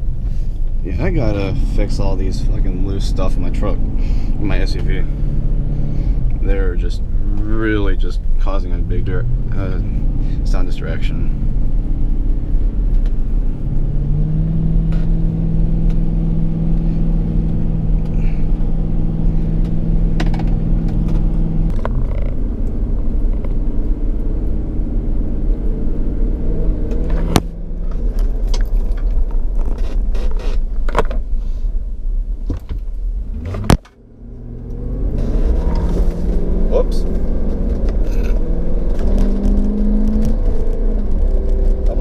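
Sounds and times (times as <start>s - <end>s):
road and engine rumble: 0.0s - 42.0s.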